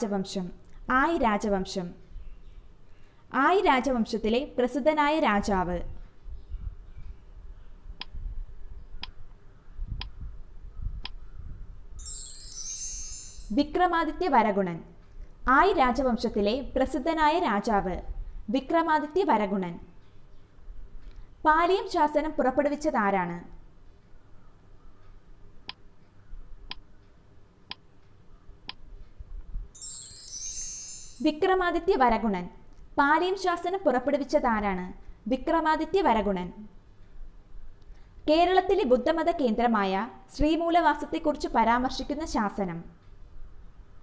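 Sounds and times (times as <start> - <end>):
bright shimmering chime: 12.0 - 13.6, 29.8 - 31.3.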